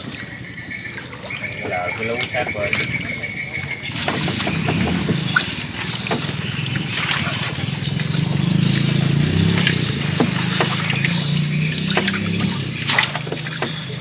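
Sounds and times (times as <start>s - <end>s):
water trickling: 0.0s - 14.0s
small engine running: 4.2s - 14.0s.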